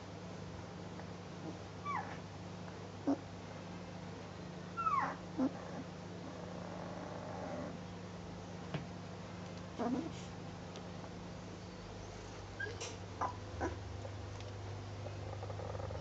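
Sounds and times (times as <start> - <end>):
puppies squeaking and whimpering: 1.9 - 2.2, 4.8 - 5.6, 12.6 - 13.8
puppy yips: 1.9 - 2.2, 4.8 - 5.2, 12.6 - 13.8.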